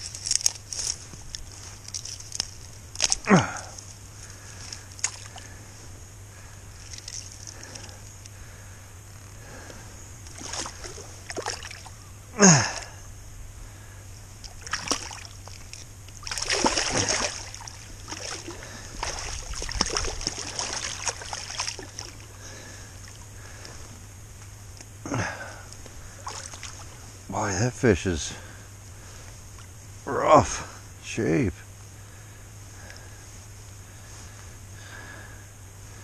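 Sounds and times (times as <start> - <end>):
river water splashing: 4.6 - 5.6, 6.7 - 7.9, 10.3 - 12.9, 14.4 - 23.3, 26.1 - 27.0
rushing river current: 16.2 - 22.3.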